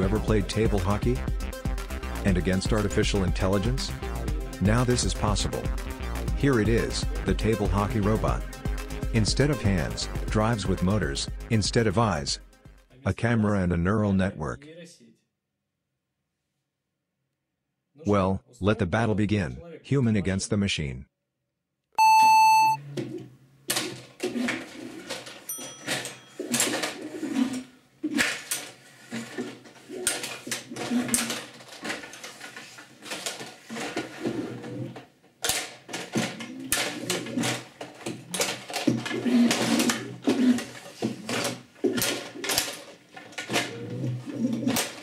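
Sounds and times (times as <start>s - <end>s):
short beep: 22.0s - 22.8s.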